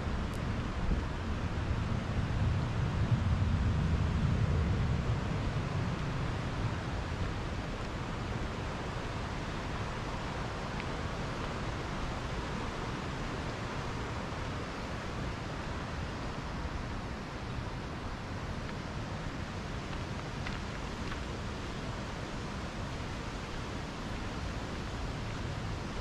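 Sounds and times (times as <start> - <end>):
wind rumble on microphone: 0.0 - 26.0
stream water rushing: 6.2 - 26.0.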